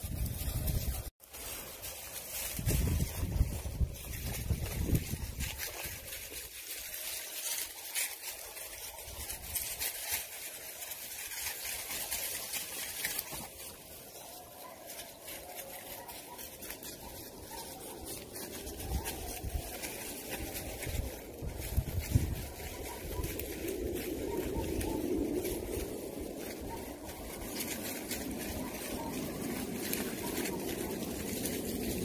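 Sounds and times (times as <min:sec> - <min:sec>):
wind buffeting microphone: 0:00.0 - 0:01.1, 0:02.4 - 0:06.5, 0:18.2 - 0:32.0
leaves and twigs crackling underfoot: 0:00.0 - 0:32.0.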